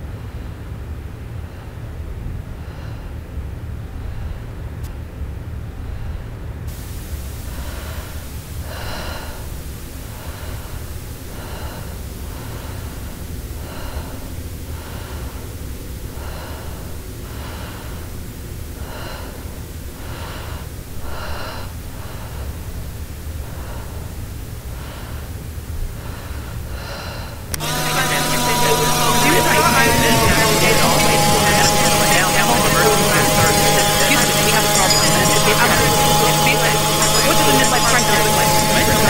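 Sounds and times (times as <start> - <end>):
hiss: 6.7 - 25.3
slow breathing: 7.3 - 22.8, 23.4 - 27.6
low hum: 27.5 - 39.0.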